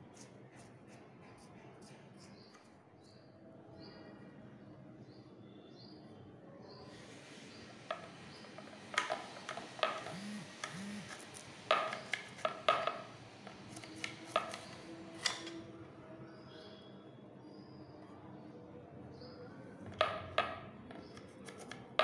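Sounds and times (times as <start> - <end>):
knife slicing vegetable: 10.1 - 15.5, 21.1 - 22.0
knife knocking on wooden board: 11.7 - 13.0.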